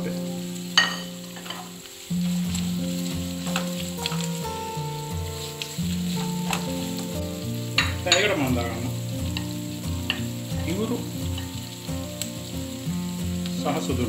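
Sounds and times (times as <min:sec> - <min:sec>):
onions sizzling in hot oil: 0:00.0 - 0:14.0
wooden spoon knocking on pan: 0:00.8 - 0:01.7, 0:02.5 - 0:04.6, 0:05.2 - 0:12.8.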